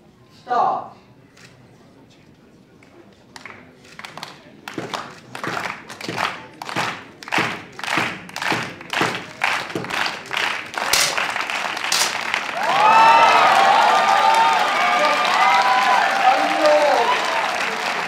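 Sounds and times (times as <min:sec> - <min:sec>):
spectators clapping in unison: 0:03.3 - 0:18.0
crowd cheering and applause: 0:04.7 - 0:18.0
air pistol shot crack: 0:10.9 - 0:12.3.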